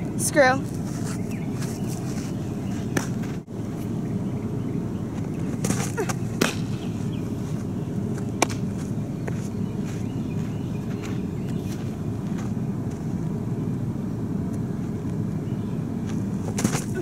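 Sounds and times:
low outdoor rumble: 0.0s - 17.0s
ball smacking into mitt: 5.6s - 6.8s.

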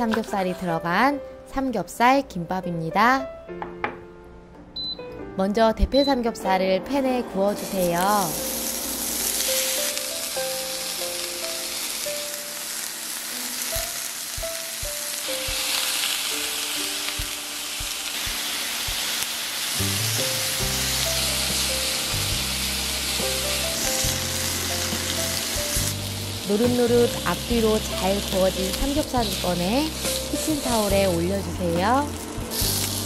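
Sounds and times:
light background music: 0.0s - 33.0s
meat sizzling in a pan: 7.6s - 33.0s.

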